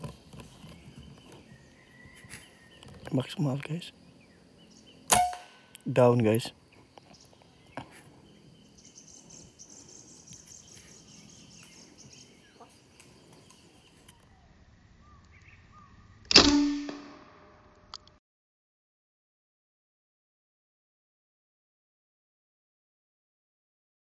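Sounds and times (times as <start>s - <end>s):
air rifle shot: 5.1s - 5.7s, 16.3s - 17.4s.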